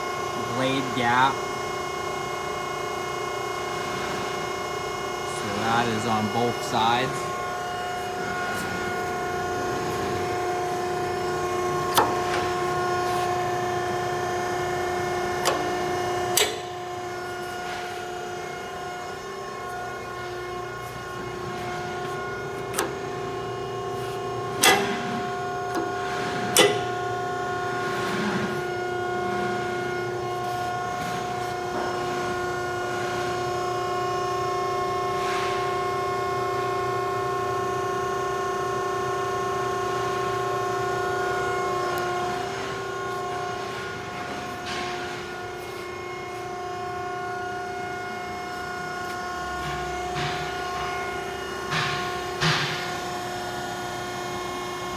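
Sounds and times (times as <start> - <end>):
metal shear motor humming: 0.0 - 54.9
sharp metallic clunks: 26.5 - 26.9.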